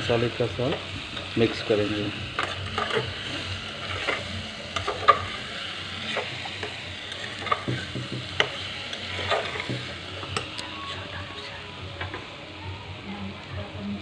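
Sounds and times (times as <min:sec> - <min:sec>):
food sizzling in a pot: 0:00.0 - 0:14.0
metal spoon scraping a pot: 0:02.4 - 0:10.6.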